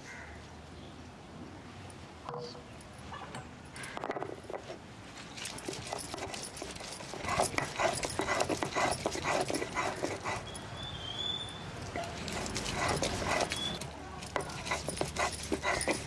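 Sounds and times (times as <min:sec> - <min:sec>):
stone roller grinding on stone: 0:04.5 - 0:10.6, 0:12.1 - 0:16.0.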